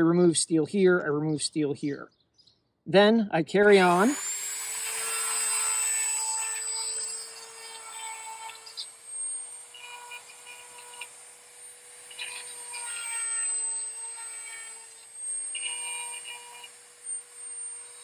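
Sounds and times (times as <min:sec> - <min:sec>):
rotary tool whining: 0:03.6 - 0:18.0
rasping grinding on chain: 0:03.8 - 0:18.0.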